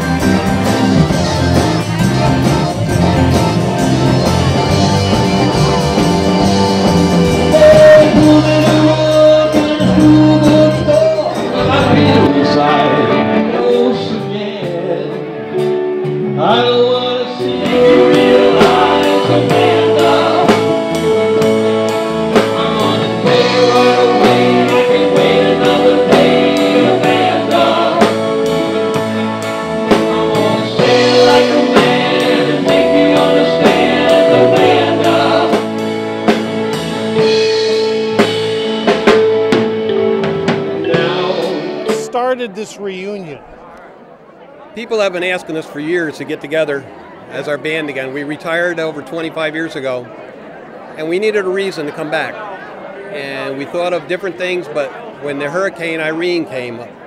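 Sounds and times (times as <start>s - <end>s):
drum kit beat: 0.0s - 15.0s, 17.4s - 42.4s
held chords: 0.0s - 43.5s
person singing: 6.6s - 15.6s, 16.2s - 36.0s, 40.6s - 42.0s.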